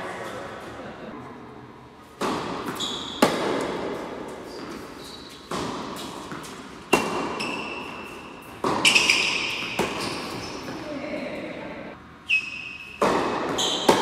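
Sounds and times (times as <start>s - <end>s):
tennis ball hit by racket: 2.2s - 10.8s, 13.0s - 14.0s
tennis ball bouncing on court: 2.2s - 10.9s, 13.0s - 14.0s
tennis shoes squeaking: 2.6s - 3.6s, 4.3s - 11.0s, 12.2s - 14.0s.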